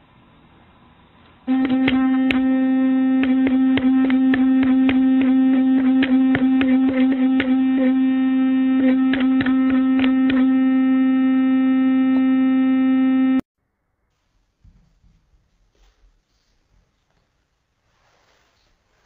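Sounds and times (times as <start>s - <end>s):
electric toothbrush buzzing: 1.5s - 13.4s.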